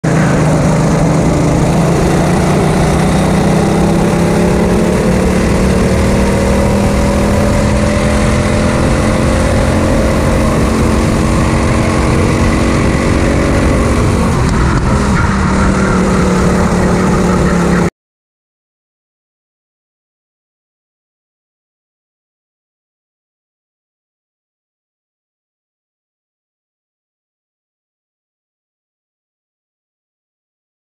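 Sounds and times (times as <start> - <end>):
go-kart engine running hard: 0.0 - 17.9
steady rushing noise: 0.0 - 17.9.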